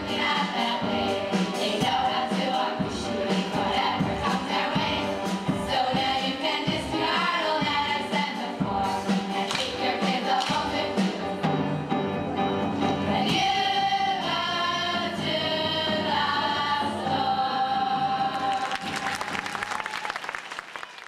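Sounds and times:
girls' choir singing: 0.0s - 11.7s, 13.0s - 19.0s
backing music: 0.0s - 20.8s
hands clapping: 9.4s - 10.7s, 18.3s - 21.0s.

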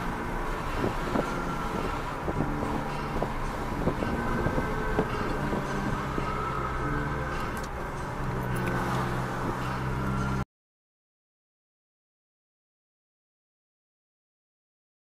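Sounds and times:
car engine and tyres humming: 0.0s - 10.5s.

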